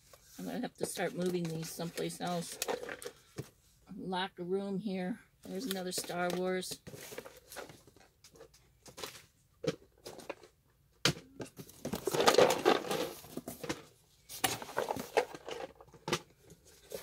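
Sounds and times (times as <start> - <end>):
cardboard rustling and scraping: 5.5 - 9.3, 11.4 - 17.0.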